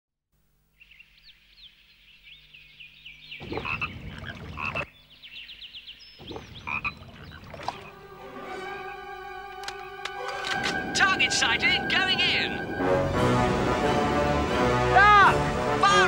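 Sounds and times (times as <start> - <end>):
frogs croaking loudly: 2.7 - 5.0, 5.6 - 8.0.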